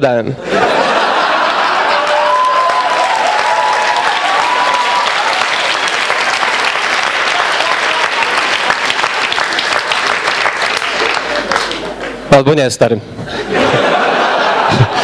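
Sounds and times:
audience applauding: 1.0 - 12.2
voices rising over clapping: 1.8 - 12.2.

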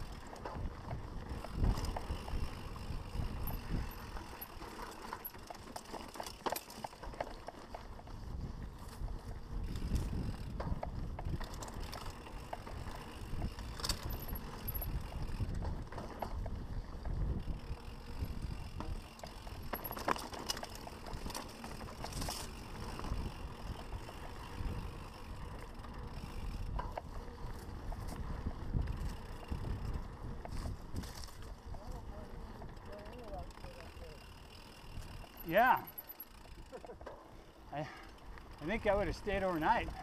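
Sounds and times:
wind buffeting microphone: 0.0 - 4.4, 8.0 - 19.9, 21.0 - 32.9
bike clicks and rattles: 0.0 - 40.0
tyres rolling over dirt: 0.0 - 40.0.

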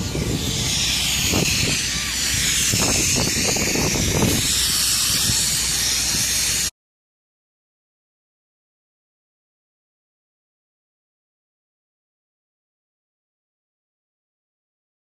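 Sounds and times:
spray wand hissing: 0.0 - 6.7.

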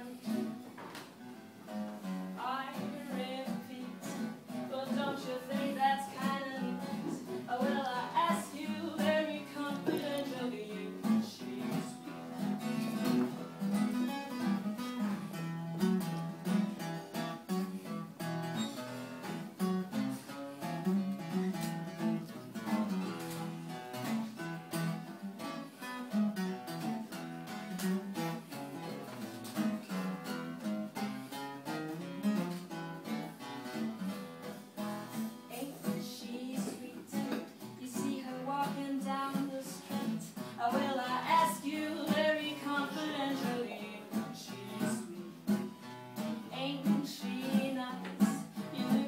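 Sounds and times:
acoustic guitars strumming: 0.0 - 49.0.

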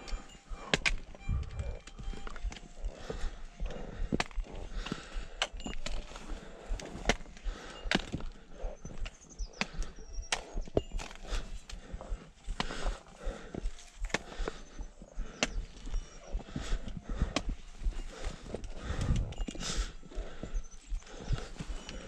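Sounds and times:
trekking poles clacking on rocks: 0.0 - 20.4
boots stepping on stones: 0.0 - 22.0.

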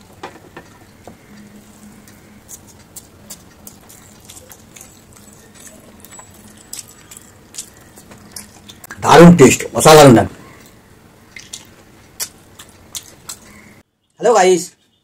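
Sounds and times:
faint steady hum: 0.0 - 14.2
fingers squishing rice and gravy: 0.7 - 9.1, 10.5 - 13.8.

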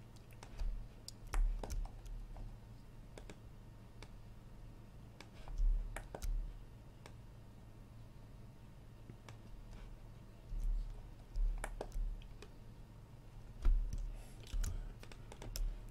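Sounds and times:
low steady hum: 0.0 - 15.9
mouse and keyboard clicks: 0.1 - 2.2, 3.1 - 3.4, 5.2 - 6.4, 10.6 - 12.6, 13.6 - 15.9.

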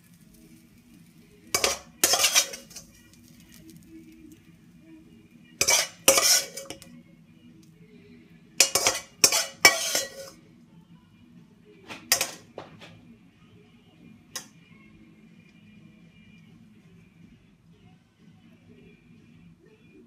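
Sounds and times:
metal spoon scraping a wok: 1.5 - 3.8, 5.6 - 6.9, 8.6 - 10.4.

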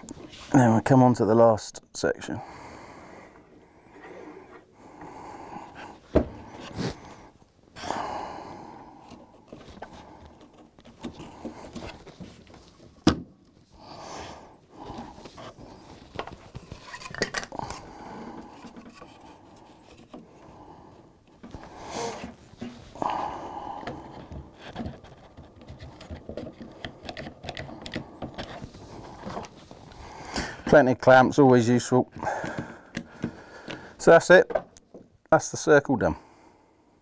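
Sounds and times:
shuffling and scraping: 0.0 - 1.5, 9.2 - 13.0, 14.8 - 20.3.

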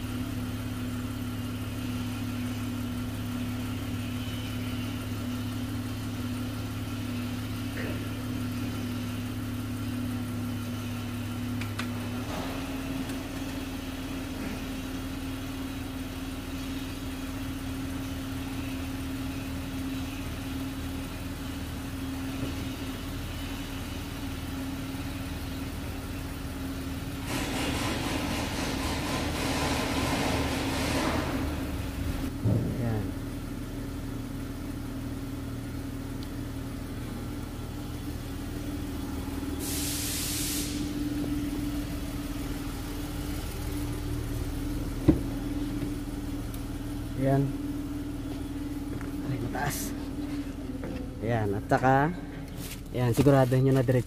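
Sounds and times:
car engine idling: 0.0 - 54.0
loud hiss: 39.6 - 41.2.

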